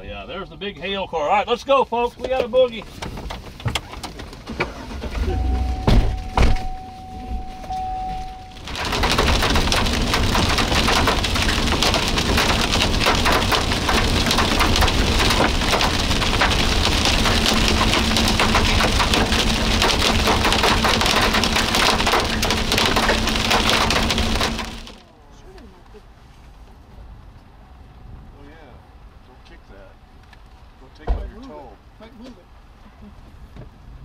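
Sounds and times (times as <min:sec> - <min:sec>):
heavy rain on vehicle roof: 0:02.2 - 0:25.1.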